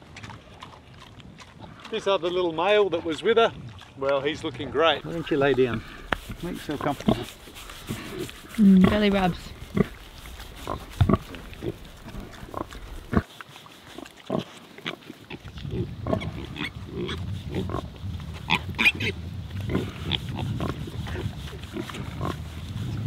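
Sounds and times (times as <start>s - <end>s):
pigs grunting: 0.0s - 23.0s.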